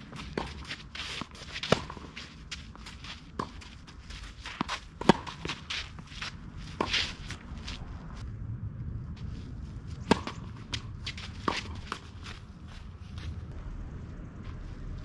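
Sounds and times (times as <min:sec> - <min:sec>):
racket hitting ball: 0:00.0 - 0:07.6, 0:10.0 - 0:12.4
shoes scuffing on clay: 0:00.0 - 0:08.2, 0:09.9 - 0:13.5.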